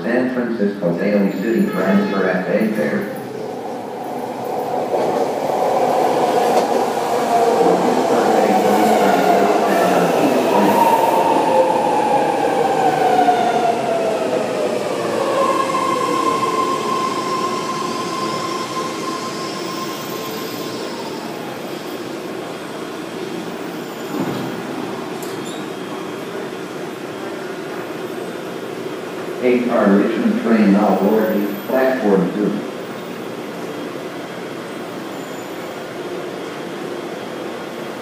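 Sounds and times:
train rumble: 0.0s - 22.4s
train squeal: 1.1s - 3.0s, 15.0s - 22.0s, 23.6s - 26.1s, 33.0s - 37.7s.

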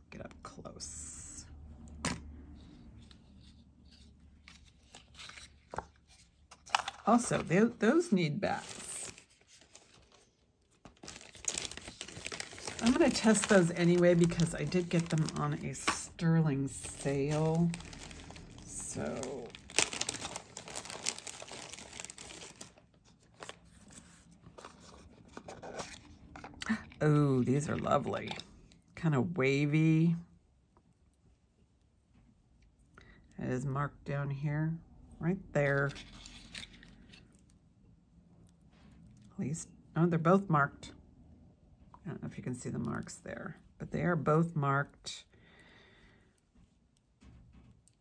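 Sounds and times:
packaging crinkling: 6.6s - 26.1s.

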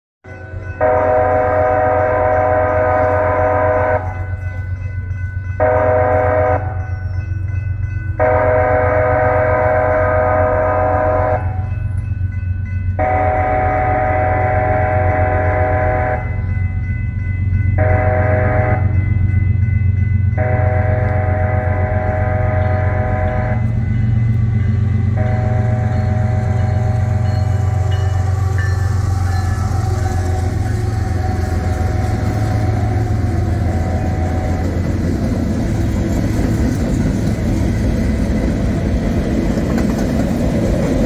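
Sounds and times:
train rumble: 0.2s - 41.0s
locomotive air horn blasts: 0.8s - 4.2s, 5.6s - 6.8s, 8.2s - 11.7s, 13.0s - 16.4s, 17.8s - 19.0s, 20.4s - 23.9s, 24.8s - 35.0s.

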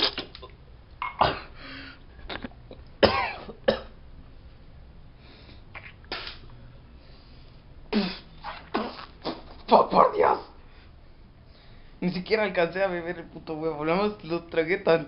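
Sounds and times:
person gagging and coughing: 1.0s - 1.6s, 2.3s - 3.9s.

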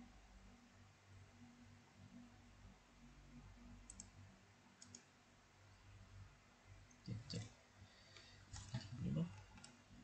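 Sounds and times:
computer mouse clicks: 3.8s - 4.2s, 4.8s - 5.1s, 8.1s - 9.8s.

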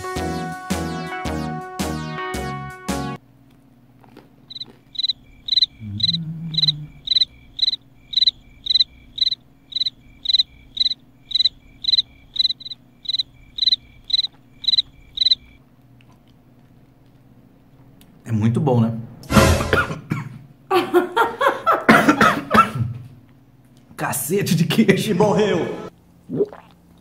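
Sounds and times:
cricket chirping: 4.5s - 15.6s
low voice murmur: 5.8s - 7.0s.

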